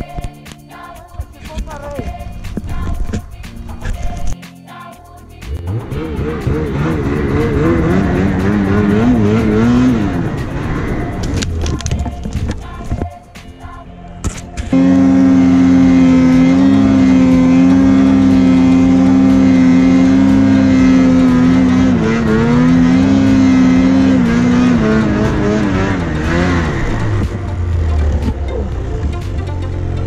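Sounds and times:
snowmobile engine at high revs: 0:05.5 - 0:11.8, 0:14.7 - 0:30.0.

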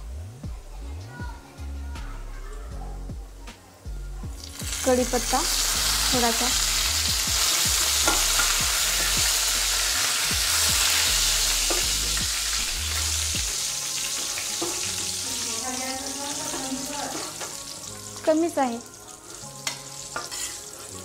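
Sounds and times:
spices sizzling in hot oil: 0:04.3 - 0:21.0.

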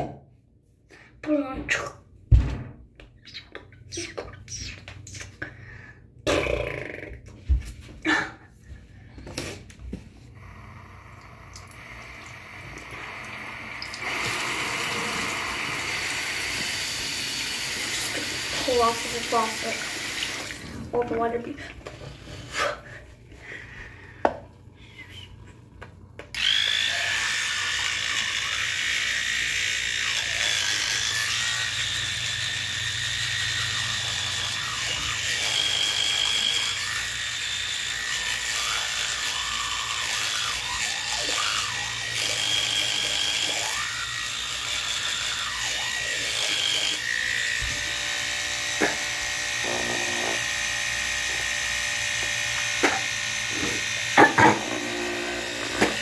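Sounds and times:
electric toothbrush buzzing: 0:10.3 - 0:20.7, 0:26.3 - 0:56.0.

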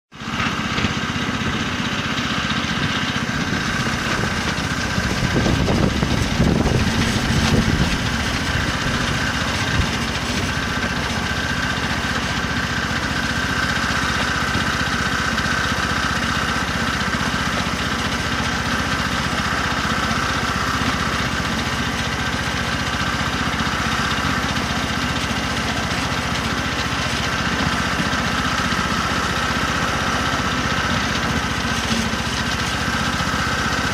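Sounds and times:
miniature locomotive engine droning: 0:00.1 - 0:33.9.

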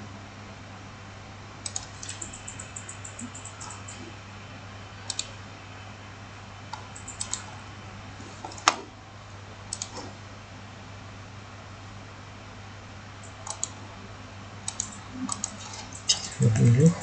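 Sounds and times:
steady low hum: 0:00.0 - 0:17.0
computer mouse clicking: 0:01.6 - 0:04.1, 0:05.1 - 0:05.3, 0:06.7 - 0:07.5, 0:08.5 - 0:08.8, 0:09.7 - 0:10.1, 0:13.2 - 0:13.8, 0:14.6 - 0:16.4.

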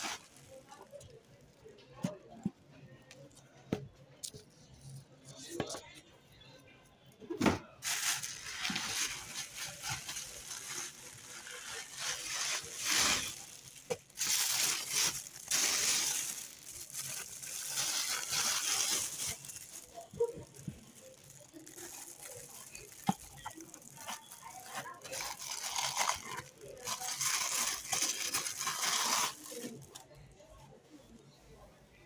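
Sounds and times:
plastic packaging crinkling: 0:00.0 - 0:01.7, 0:07.8 - 0:30.1.

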